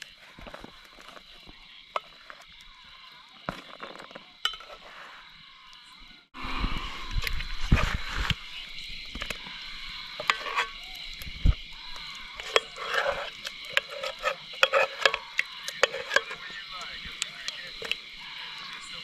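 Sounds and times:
utensil scraping cooking pot: 0:00.0 - 0:05.4, 0:06.7 - 0:19.0
metal clinking on metal: 0:04.4 - 0:04.8
steady high drone: 0:06.4 - 0:10.7.

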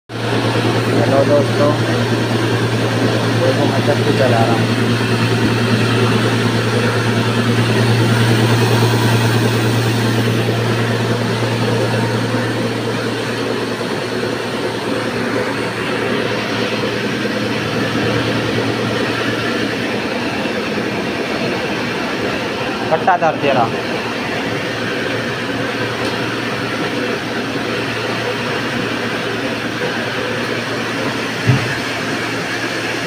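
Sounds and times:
mill motor hum: 0:00.1 - 0:33.0.

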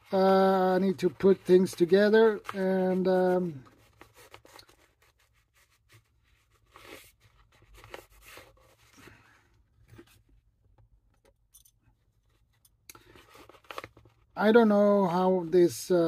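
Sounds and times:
tools clicking and scraping: 0:11.2 - 0:11.9.

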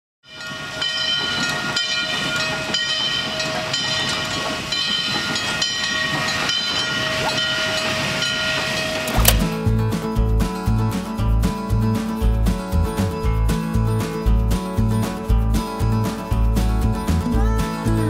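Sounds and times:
locomotive bell ringing: 0:00.2 - 0:12.3
hiss of steam: 0:03.3 - 0:09.1.

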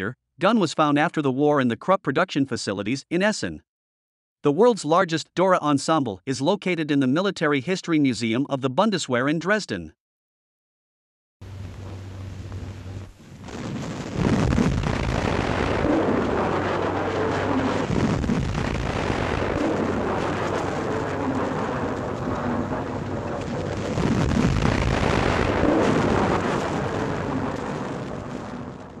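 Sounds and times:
heavy artillery fire rumbling: 0:11.6 - 0:29.0.

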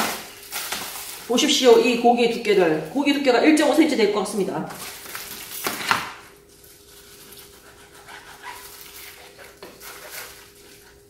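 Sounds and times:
knife slicing through raw meat: 0:07.3 - 0:10.6.

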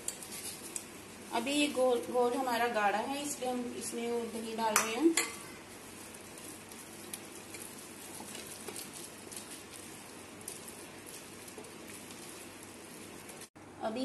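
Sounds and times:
spatula stirring thick batter: 0:00.0 - 0:13.6
spatula tapping glass bowl: 0:04.7 - 0:05.4.

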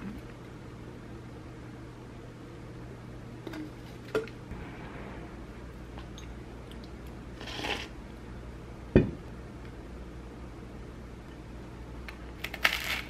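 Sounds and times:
steady low hum: 0:00.0 - 0:13.0
glass thumping on table: 0:09.0 - 0:09.2.

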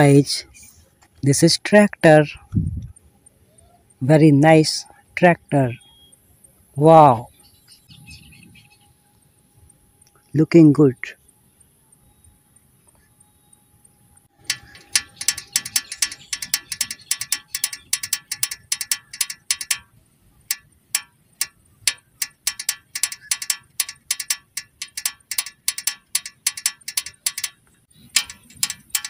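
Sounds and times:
toy gear motor ratcheting: 0:14.3 - 0:19.9, 0:20.5 - 0:29.0.

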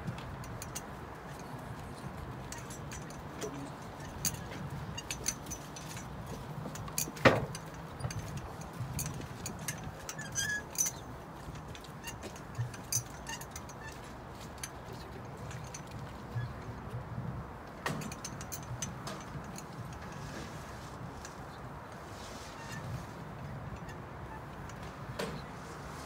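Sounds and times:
light clicks and knocks: 0:00.0 - 0:17.0, 0:17.7 - 0:20.6.

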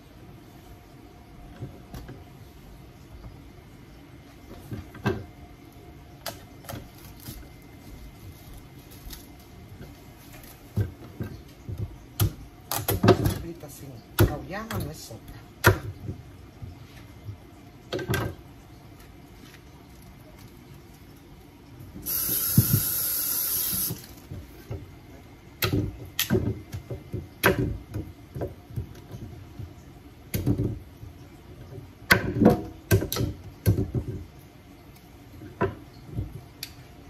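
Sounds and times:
loud steady hiss: 0:22.0 - 0:24.1.

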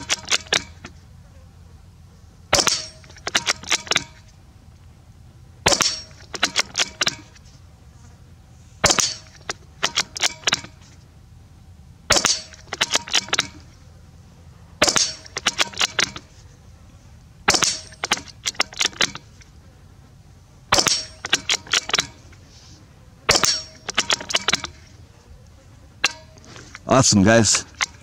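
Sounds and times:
rifle shots: 0:05.6 - 0:06.8, 0:12.1 - 0:12.6, 0:14.8 - 0:16.2.

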